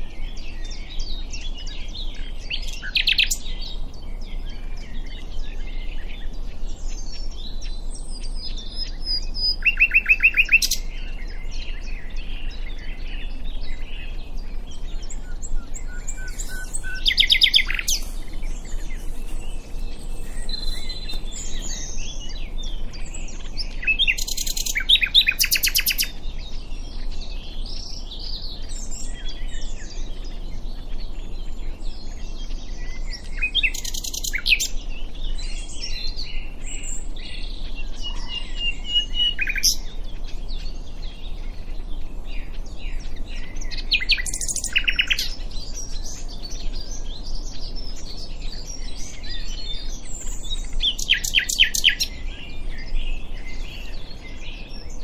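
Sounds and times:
nightingale singing: 0:00.0 - 0:55.0
bird warbles and whistles: 0:07.6 - 0:10.9, 0:14.9 - 0:22.7, 0:23.3 - 0:26.1, 0:37.9 - 0:39.9, 0:43.4 - 0:46.2.

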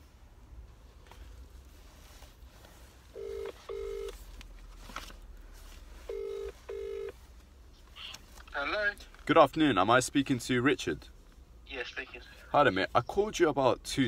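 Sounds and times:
telephone ringback tone: 0:03.2 - 0:04.1, 0:06.1 - 0:07.1.

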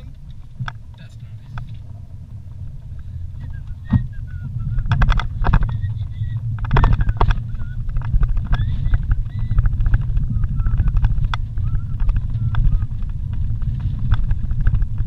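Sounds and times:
rattles and knocks over bumps: 0:00.0 - 0:15.0
vehicle engine and tyres rumble: 0:00.0 - 0:15.0
short high squeaks: 0:03.4 - 0:09.8.

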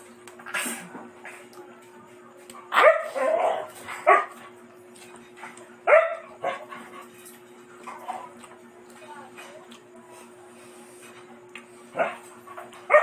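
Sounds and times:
dog barking: 0:02.7 - 0:04.4, 0:05.8 - 0:06.7, 0:11.9 - 0:13.0.

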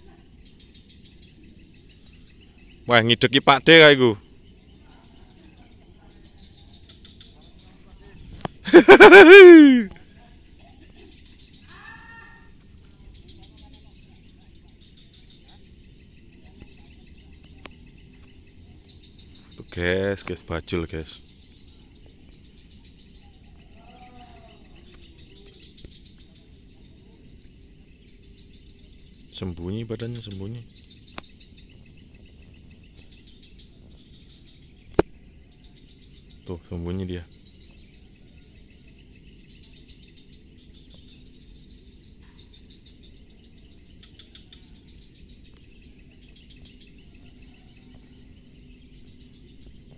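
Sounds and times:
faint bird chirps: 0:00.0 - 0:49.9
insects droning: 0:00.0 - 0:49.9
steady low background noise: 0:00.0 - 0:49.9
faint rising and falling call: 0:08.7 - 0:09.9.

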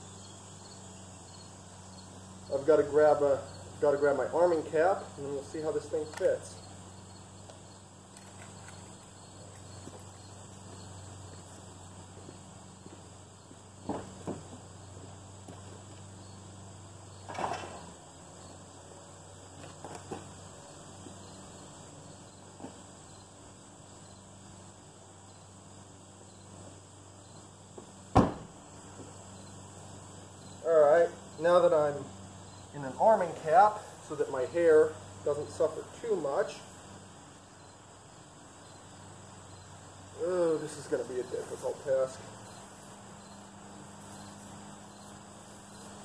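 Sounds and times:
crickets chirping: 0:00.0 - 0:46.0
car door opening clunks: 0:28.1 - 0:28.5
car door slamming: 0:28.1 - 0:28.6.

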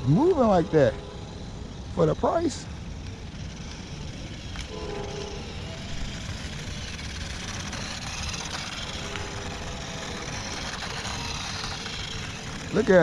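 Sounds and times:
toy rc truck on wet asphalt: 0:00.0 - 0:13.0.

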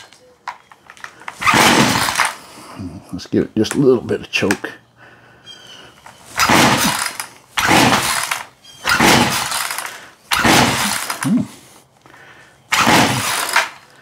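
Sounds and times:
chainsaw starter cord pulls: 0:01.0 - 0:02.4, 0:06.4 - 0:11.5, 0:12.7 - 0:13.9
engine cranking: 0:01.1 - 0:02.4, 0:06.3 - 0:11.5, 0:12.7 - 0:13.9.

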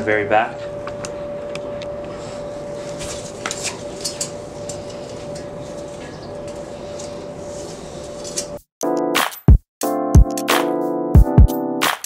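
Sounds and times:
steady hum: 0:00.0 - 0:08.6.

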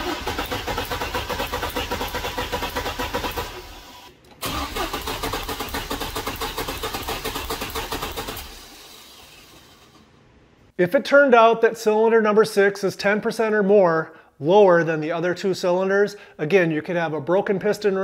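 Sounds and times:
car engine cranking on starter: 0:00.0 - 0:10.1.

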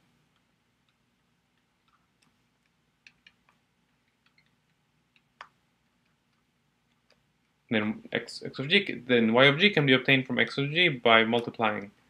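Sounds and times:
stylus tapping on tablet: 0:01.6 - 0:06.2.

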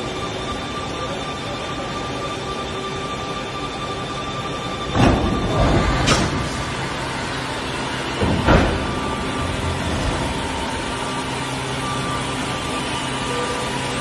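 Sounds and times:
landing gear mechanical hum: 0:00.0 - 0:14.0
mechanical knock: 0:08.2 - 0:10.7.

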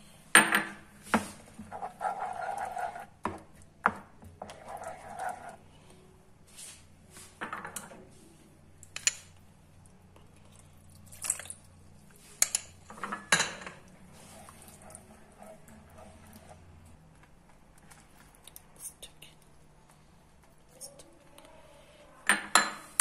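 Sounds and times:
spatula scraping frying pan: 0:01.6 - 0:03.2, 0:04.4 - 0:05.6.

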